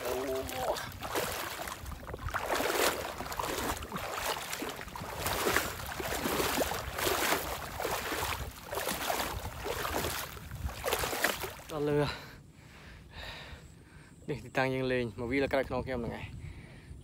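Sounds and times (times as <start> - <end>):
footsteps swishing through vegetation: 0.0 - 11.7
wind rumble on microphone: 0.0 - 12.0, 14.8 - 17.0.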